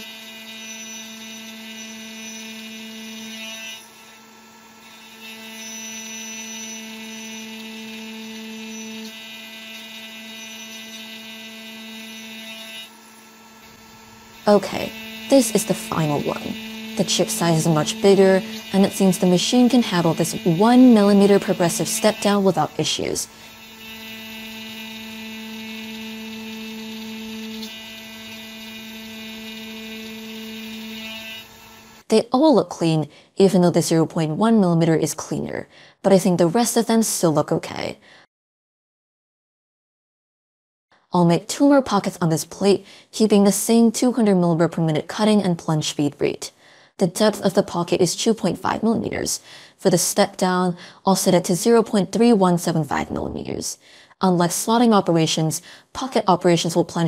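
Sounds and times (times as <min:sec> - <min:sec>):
cnc mill whining: 0:00.0 - 0:32.0.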